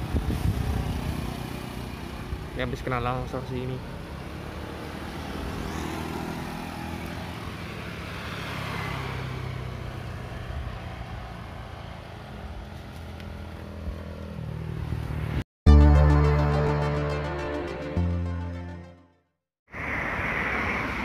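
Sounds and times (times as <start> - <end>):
wind and road noise: 0.0 - 15.5, 19.7 - 21.0
loud music: 15.7 - 19.2.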